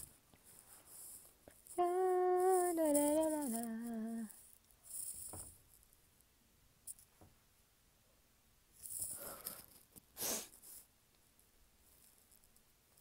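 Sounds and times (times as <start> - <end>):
woman humming: 1.7 - 4.3
soft breath: 9.0 - 10.7.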